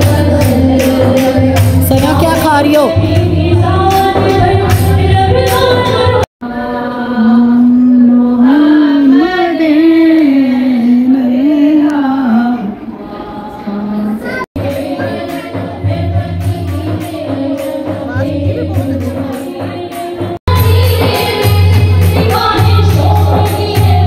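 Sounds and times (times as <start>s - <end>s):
woman singing unaccompanied: 2.8s - 15.7s.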